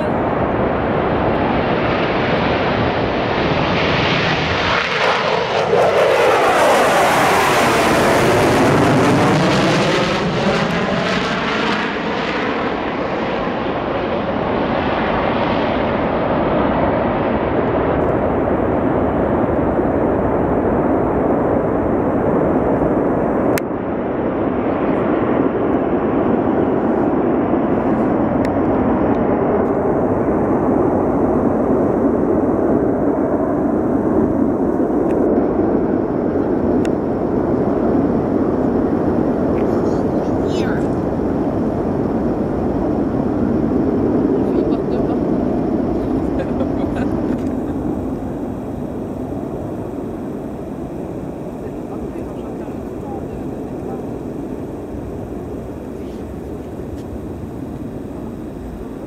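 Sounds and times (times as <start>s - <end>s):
military jet taking off: 0.0s - 59.0s.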